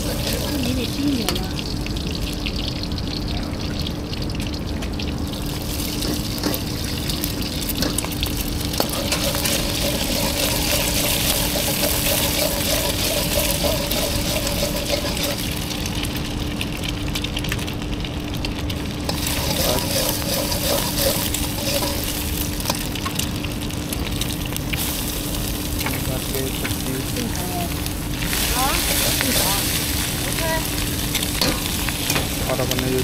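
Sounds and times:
metal spatula scraping wok: 0:00.0 - 0:01.0, 0:08.8 - 0:15.7, 0:19.1 - 0:22.9
burner fan hum: 0:00.0 - 0:33.0
wok sizzling: 0:00.0 - 0:33.0.

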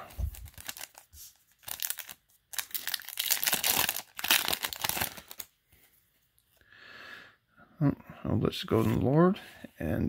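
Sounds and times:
foil wrapper tearing and crinkling: 0:00.2 - 0:05.5.

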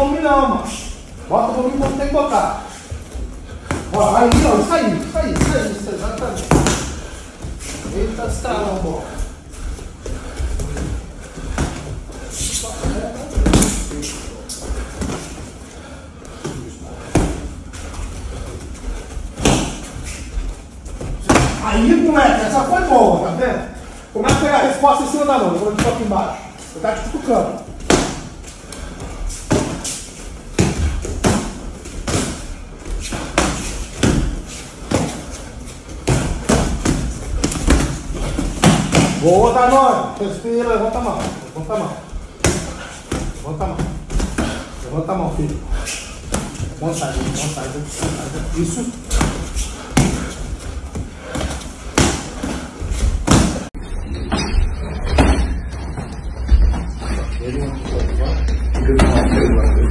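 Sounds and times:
punches hitting boxing gloves: 0:49.1 - 0:50.4.

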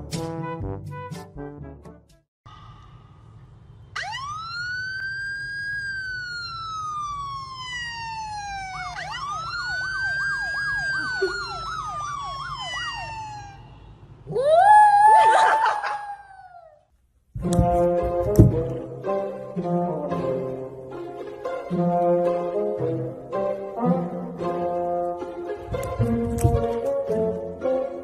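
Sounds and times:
electronic siren wail from phone: 0:04.0 - 0:13.8.

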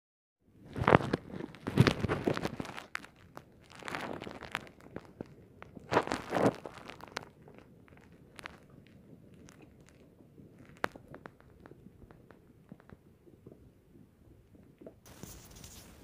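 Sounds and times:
faint hiss: 0:15.1 - 0:16.0.

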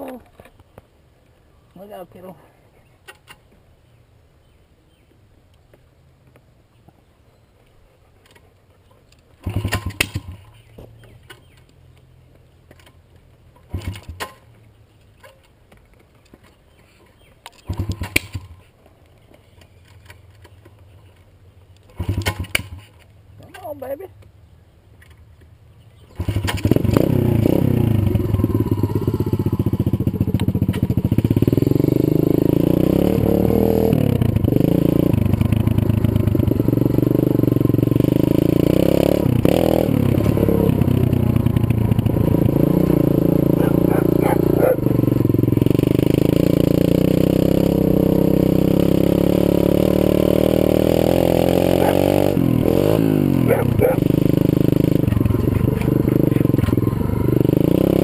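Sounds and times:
motorcycle engine revving: 0:09.4 - 0:11.6, 0:13.6 - 0:14.6, 0:17.6 - 0:18.6, 0:21.8 - 0:24.0, 0:26.0 - 0:58.0.

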